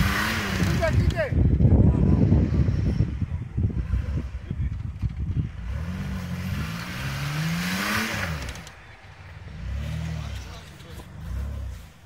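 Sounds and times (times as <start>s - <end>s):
truck engine revving: 0.0s - 12.0s.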